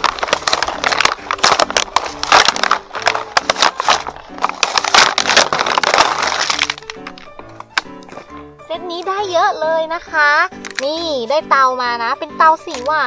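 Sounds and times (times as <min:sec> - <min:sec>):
plastic packaging crinkling: 0:00.0 - 0:08.5, 0:10.6 - 0:10.9, 0:12.6 - 0:13.0.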